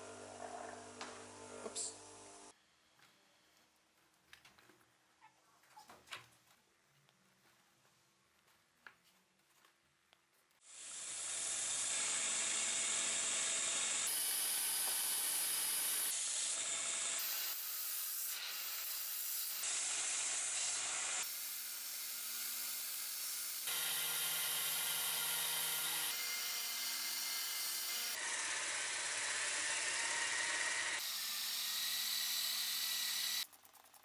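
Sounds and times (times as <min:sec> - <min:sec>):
drill spinning disc against steel: 0:10.8 - 0:17.6, 0:27.0 - 0:33.9.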